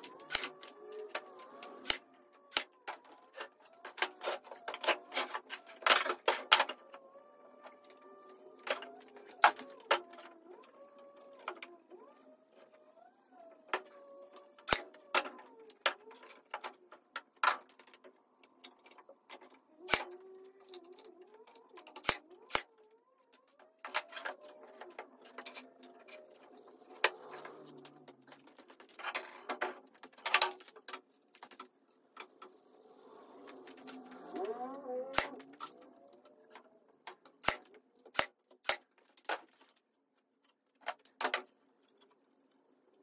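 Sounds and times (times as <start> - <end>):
nail gun firing into wood: 1.8 - 2.8, 14.6 - 16.0, 19.9 - 20.1, 22.0 - 22.7, 35.1 - 35.4, 37.4 - 38.9.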